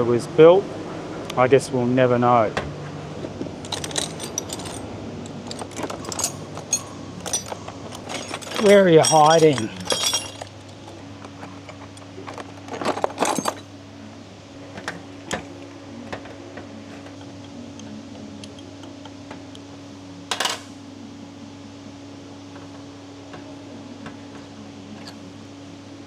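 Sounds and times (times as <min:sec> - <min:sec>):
steady low hum: 0:00.0 - 0:26.0
metal parts clinking on workbench: 0:03.6 - 0:11.0, 0:12.3 - 0:13.7.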